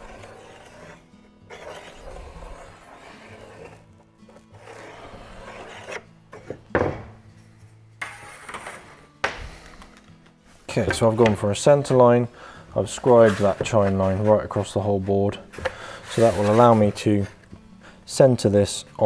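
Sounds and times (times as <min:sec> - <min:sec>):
pencil scratching on plywood: 0:00.0 - 0:06.6, 0:12.9 - 0:17.4.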